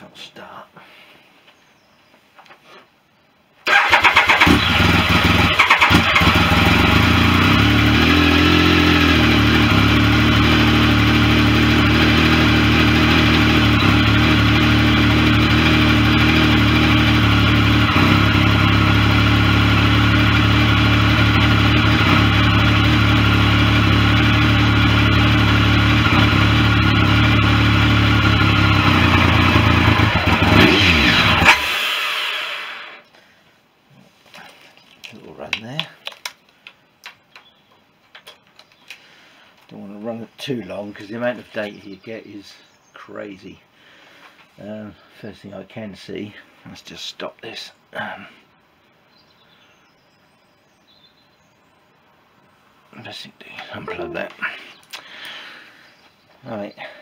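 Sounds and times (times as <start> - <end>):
motorcycle engine idling: 3.7 - 31.6.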